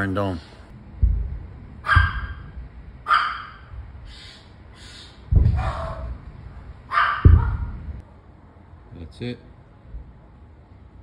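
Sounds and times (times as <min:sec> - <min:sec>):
dog barking: 0:01.8 - 0:03.7, 0:05.6 - 0:06.1, 0:06.9 - 0:07.8.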